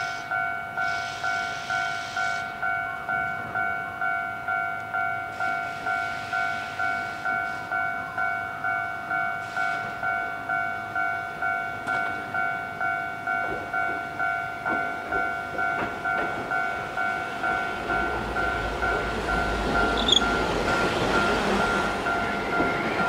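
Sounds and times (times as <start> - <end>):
level-crossing warning bell: 0.0 - 23.0
tram low rumble: 0.0 - 23.0
tram wheels clicking over rail joints: 13.3 - 23.0.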